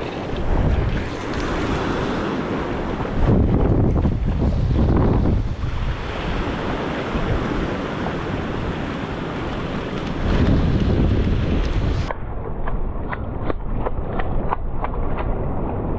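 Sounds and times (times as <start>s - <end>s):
small waves washing on beach: 0.0s - 12.1s
wind buffeting microphone: 0.0s - 15.9s.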